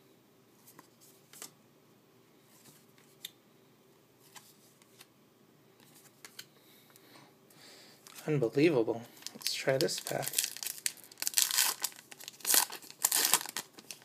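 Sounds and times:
cards being handled and flipped: 0.6 - 1.6, 4.2 - 5.1, 5.8 - 6.5.

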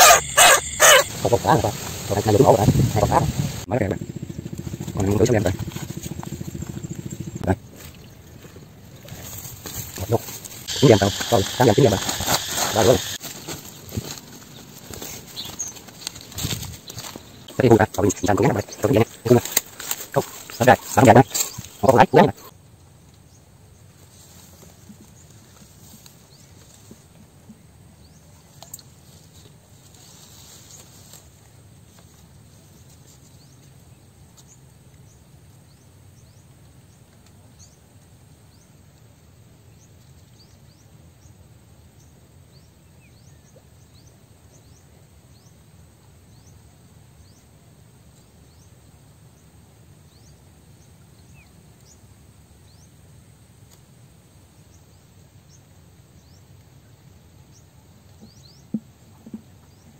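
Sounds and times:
rustle: 0.0 - 3.7, 4.4 - 59.9
even hiss: 0.0 - 3.9, 10.0 - 13.4
low rumble: 0.6 - 9.0.

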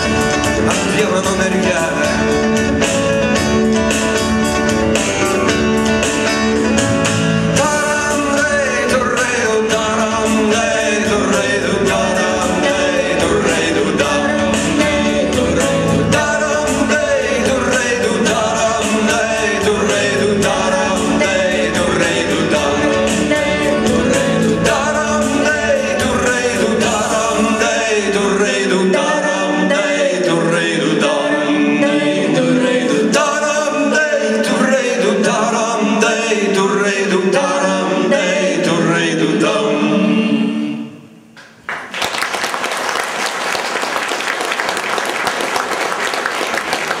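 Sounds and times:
man singing: 0.0 - 2.7, 7.5 - 40.0
rock band playing: 0.0 - 27.8
audience applauding: 41.4 - 47.0.

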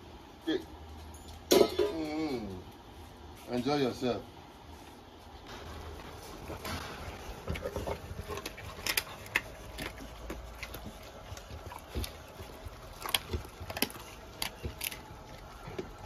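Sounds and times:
dog chewing meat: 6.4 - 16.0.

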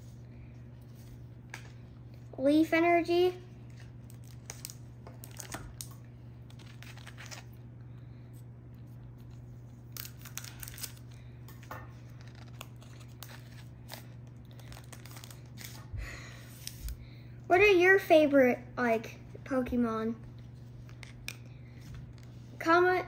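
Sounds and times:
foil pack tearing and crinkling: 3.8 - 7.6, 9.2 - 15.8.

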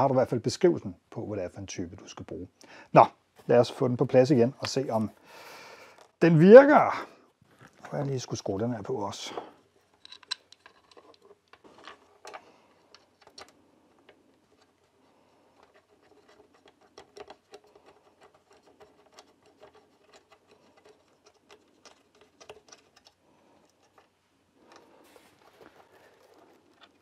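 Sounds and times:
screw turning into metal box: 9.8 - 12.4.

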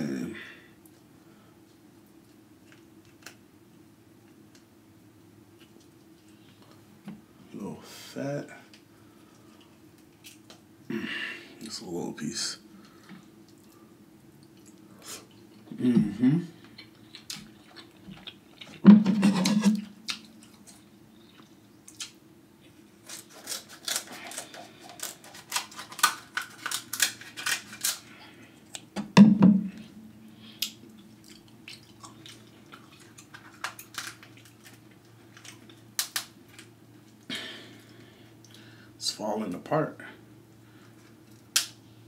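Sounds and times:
crab shells cracking: 23.0 - 28.1, 30.6 - 36.7, 41.2 - 41.8.

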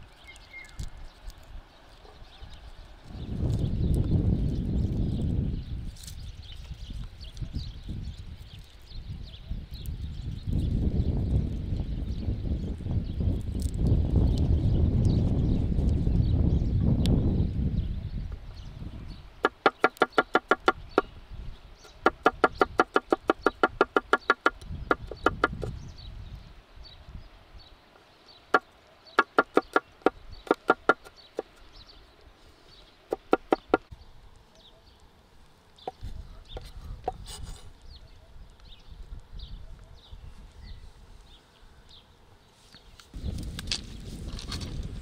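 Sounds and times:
knife chopping on wooden board: 19.4 - 21.1, 21.9 - 25.7, 29.2 - 31.5, 33.1 - 33.8.

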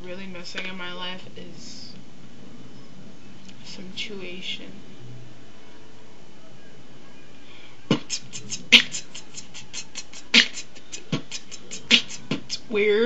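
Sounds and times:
beatboxing kick hits: 7.9 - 12.6
beatboxing hi-hat clicks: 7.9 - 12.7.

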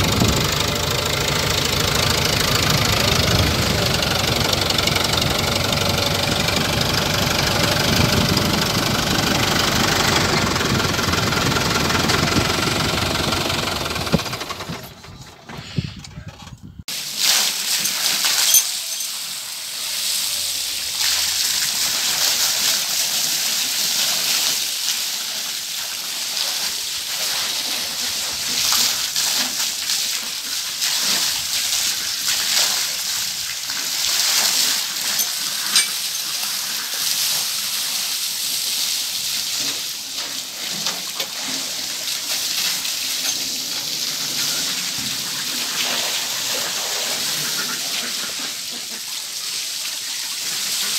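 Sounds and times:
hose water splashing: 16.9 - 50.9.

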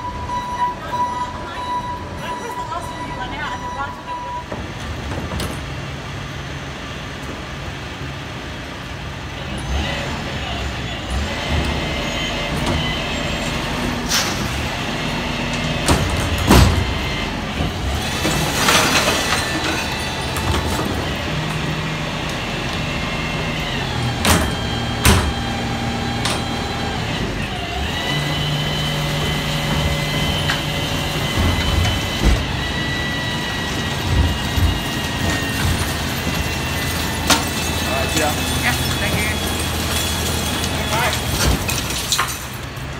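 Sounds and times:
truck engine running: 4.6 - 42.9
hydraulic whine: 9.5 - 41.8.

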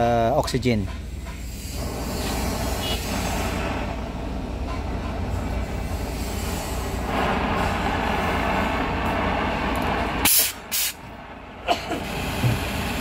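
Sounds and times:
cutting torch hissing: 1.2 - 4.6, 5.2 - 13.0
torch loud bursts: 1.4 - 4.5, 5.3 - 13.0.

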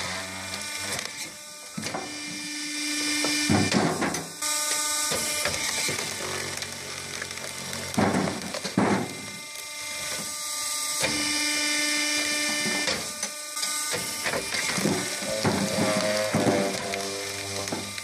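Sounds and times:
log splitter motor humming: 0.0 - 18.0
wood cracking and snapping: 3.3 - 10.4, 12.2 - 18.0.

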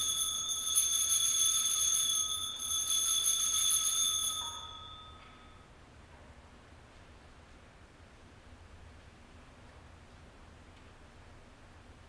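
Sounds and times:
altar bells ringing: 0.0 - 5.7.

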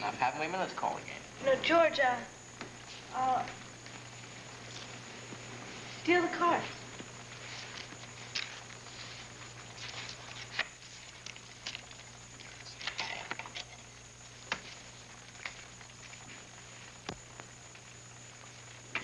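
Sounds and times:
steady low hum: 0.0 - 19.0
playing cards tapping and flicking: 14.5 - 14.7.

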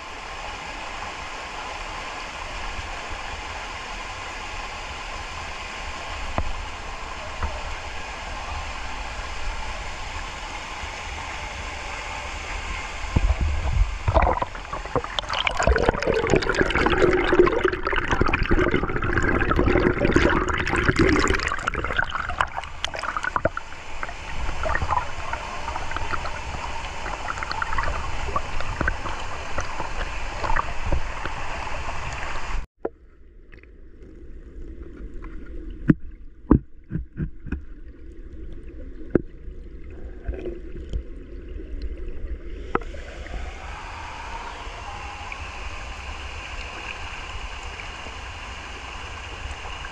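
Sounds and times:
muffled water: 0.0 - 49.9
waterfall running: 14.0 - 32.7.

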